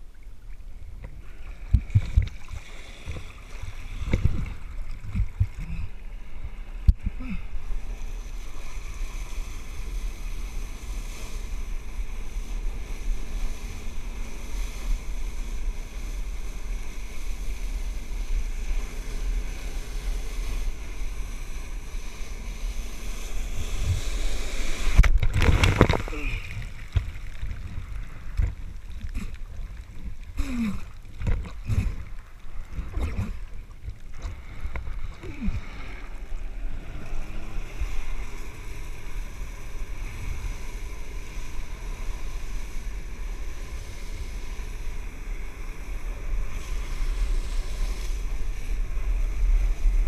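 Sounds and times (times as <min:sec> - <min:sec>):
wind on microphone: 0:00.8 - 0:50.0
knocks and splashes: 0:01.0 - 0:03.3, 0:24.9 - 0:33.4.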